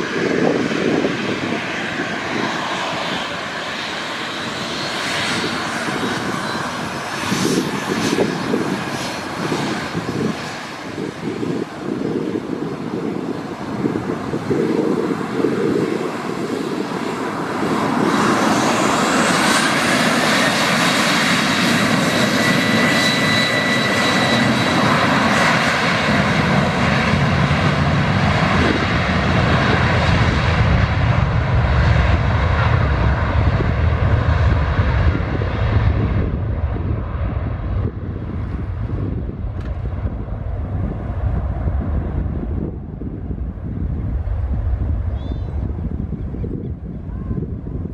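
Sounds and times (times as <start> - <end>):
jet engines spooling up whine: 0.0 - 47.9.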